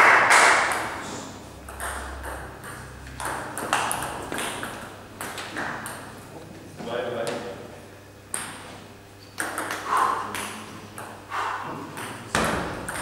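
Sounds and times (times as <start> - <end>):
table tennis ball clicking: 9.4 - 11.2.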